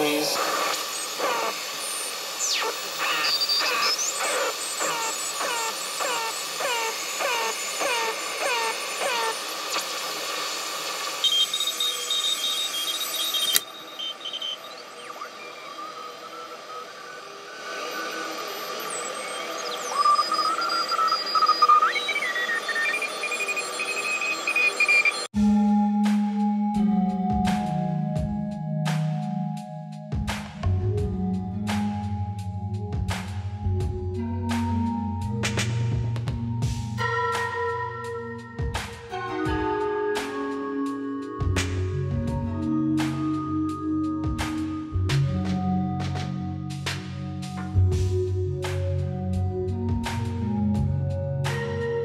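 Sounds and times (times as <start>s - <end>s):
radio static: 0.0s - 16.9s
radio whistles and gliding tones: 0.0s - 25.3s
falling chirps: 0.4s - 9.8s.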